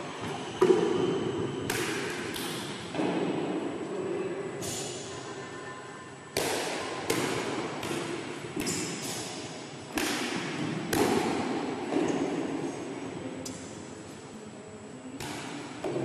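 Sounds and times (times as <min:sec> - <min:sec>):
racket hitting shuttlecock: 0:00.6 - 0:03.3, 0:06.4 - 0:12.6, 0:15.2 - 0:16.0.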